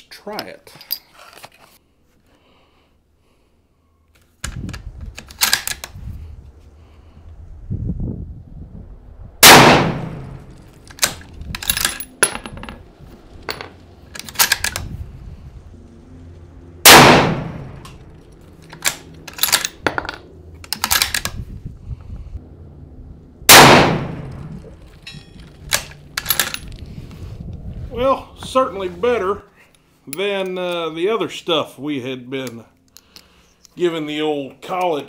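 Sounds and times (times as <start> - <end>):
rifle shots: 9.4 - 11.2, 16.8 - 17.8, 23.5 - 24.5
brass casings landing: 16.9 - 21.2, 23.5 - 26.7.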